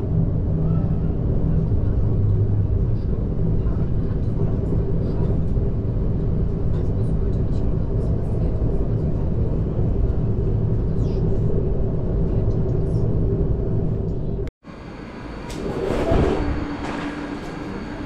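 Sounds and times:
train rumbling on rails: 0:00.0 - 0:18.0
rush of rail noise: 0:14.7 - 0:18.0.

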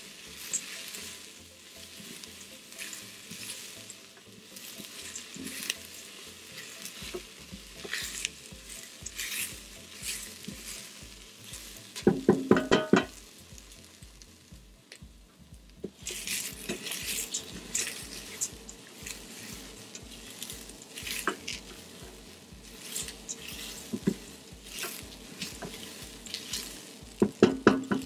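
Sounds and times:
spatula knocking against pot: 0:12.1 - 0:13.2.

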